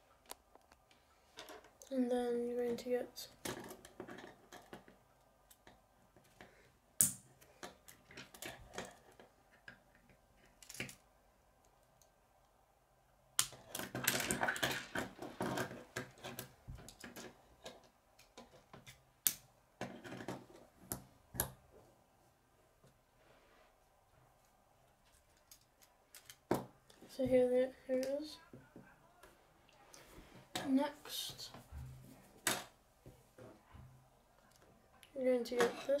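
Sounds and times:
plastic construction pieces clicking: 0:25.3 - 0:26.7.

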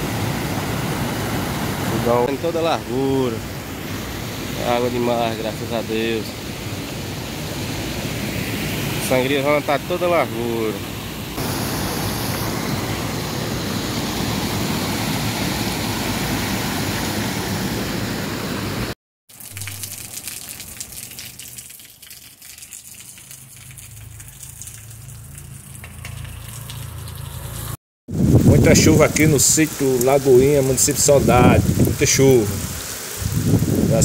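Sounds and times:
water rushing over spillway: 0:00.0 - 0:10.8, 0:11.4 - 0:17.6, 0:28.2 - 0:34.0
steady hiss with low hum: 0:00.2 - 0:08.2, 0:28.2 - 0:34.0.

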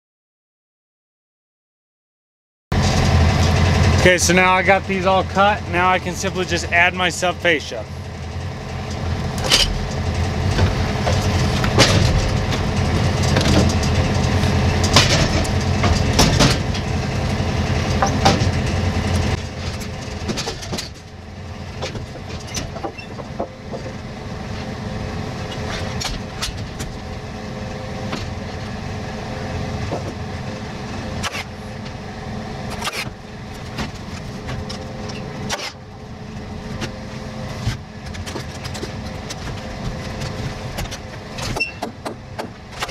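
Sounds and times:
engine running: 0:02.7 - 0:42.9
lumber knocking and clacking: 0:40.8 - 0:42.9.

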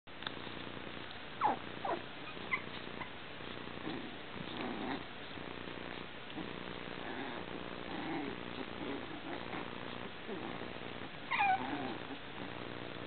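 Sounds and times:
puppy play growls: 0:00.5 - 0:13.0
puppy yelps: 0:01.4 - 0:03.2, 0:11.3 - 0:11.9.

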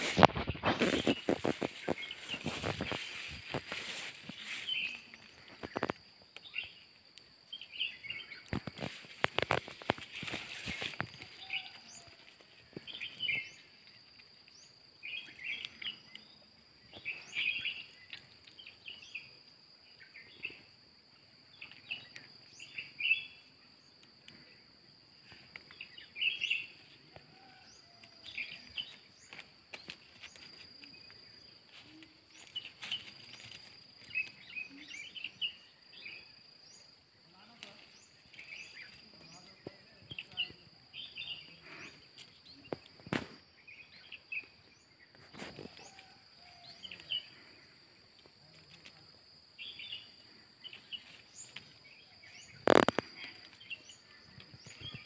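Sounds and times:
clicks and crackles: 0:00.0 - 0:04.0, 0:05.0 - 0:06.5, 0:08.3 - 0:13.1, 0:52.4 - 0:55.0
high insect drone: 0:00.0 - 0:55.0.

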